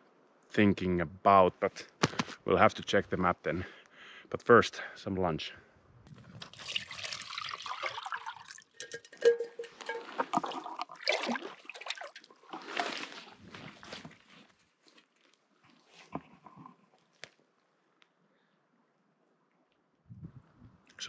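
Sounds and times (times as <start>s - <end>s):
water pouring and splashing: 6.2s - 14.0s
clicks and knocks: 8.8s - 10.4s.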